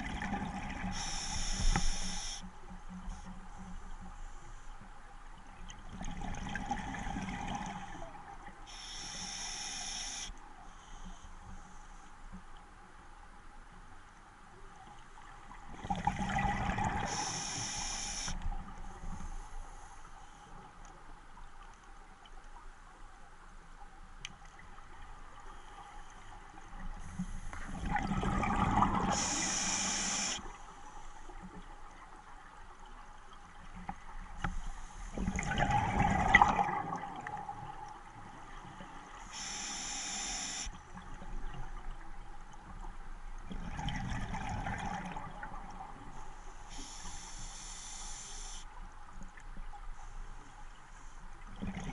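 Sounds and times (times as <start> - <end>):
exhaled bubbles gurgling underwater: 0.0 - 2.4, 5.8 - 8.5, 15.4 - 18.8, 26.6 - 30.6, 35.0 - 42.3, 43.4 - 46.2, 51.5 - 51.9
regulator hissing on inhale: 0.9 - 2.5, 8.6 - 12.1, 17.0 - 20.6, 29.0 - 31.2, 39.2 - 40.8, 46.3 - 48.7.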